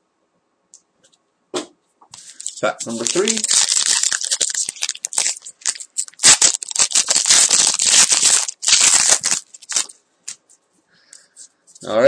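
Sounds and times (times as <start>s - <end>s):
foil wrapper crackling: 2.2s - 10.0s.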